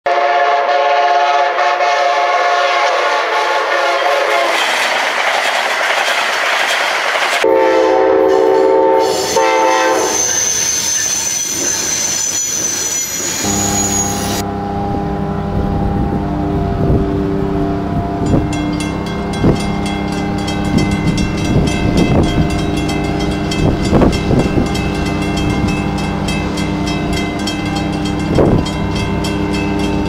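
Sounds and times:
train air horn blast: 0.1s - 4.6s, 7.4s - 12.1s
locomotive horn: 0.1s - 4.8s, 7.4s - 18.6s
train rushing past: 0.1s - 30.0s
high wheel squeal: 9.0s - 14.4s
steady low drone hum: 14.2s - 21.8s.

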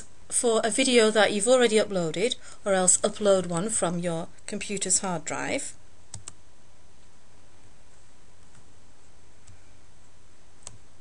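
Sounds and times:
steady background hiss: 0.0s - 11.0s
computer mouse clicks: 6.1s - 6.4s.

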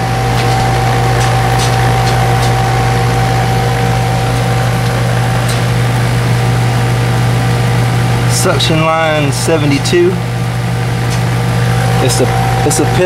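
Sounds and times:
condenser fan: 0.0s - 13.0s
heat pump compressor hum: 0.0s - 13.0s.

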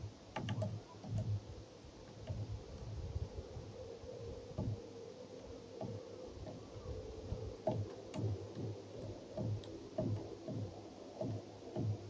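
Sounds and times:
bird pecking on wood: 0.3s - 1.4s, 7.6s - 12.0s.

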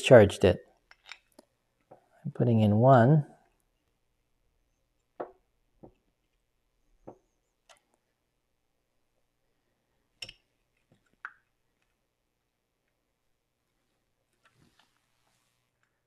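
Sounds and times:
faint clicks and taps: 7.0s - 8.1s.

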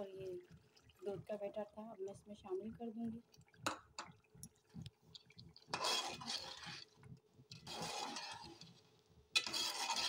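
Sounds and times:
metal spoon stirring in a pot: 5.6s - 10.0s.

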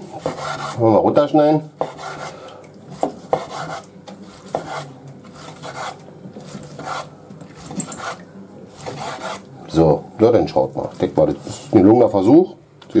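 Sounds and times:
knife slicing steak: 3.0s - 9.5s.

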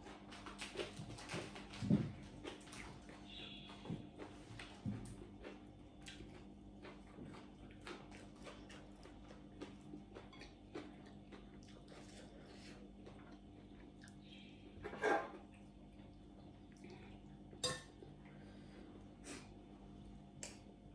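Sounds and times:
chewing: 0.0s - 14.2s
faint steady hum: 0.0s - 20.9s.

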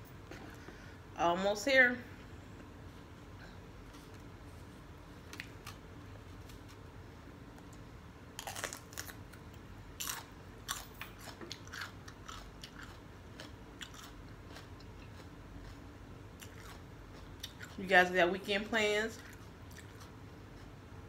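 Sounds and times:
crunchy chewing of bell pepper: 8.4s - 17.8s, 19.2s - 21.0s.

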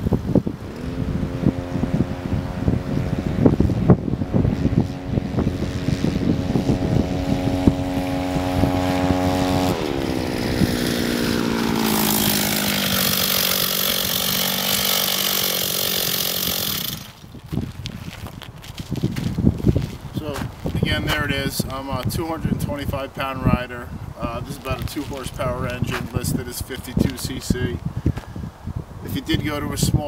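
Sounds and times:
small bicycle engine running: 1.2s - 18.2s.

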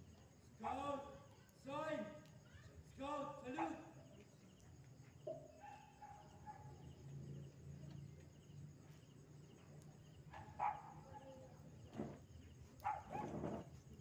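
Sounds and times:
dog barking: 5.3s - 6.8s, 10.3s - 11.4s, 12.8s - 13.6s.

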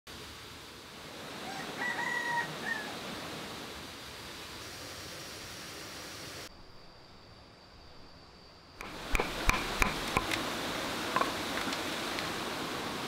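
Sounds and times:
forest hiss: 0.1s - 13.0s
high insect drone: 0.3s - 13.0s
knife chopping bamboo: 8.8s - 10.4s.

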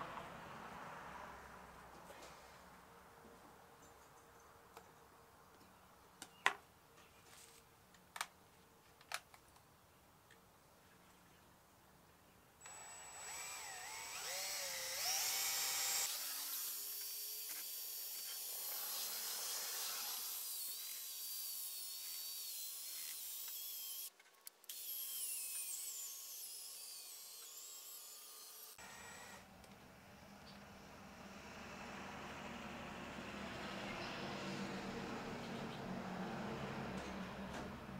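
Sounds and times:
power drill motor whine: 12.6s - 19.1s, 26.8s - 29.5s.

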